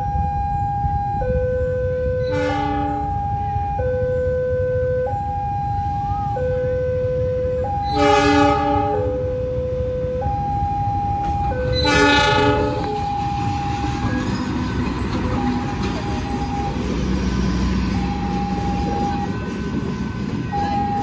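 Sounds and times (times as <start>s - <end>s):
low train rumble: 0.0s - 21.0s
two-tone crossing warning signal: 0.0s - 21.0s
locomotive horn blasts: 2.0s - 3.6s, 7.1s - 9.3s, 11.6s - 13.2s.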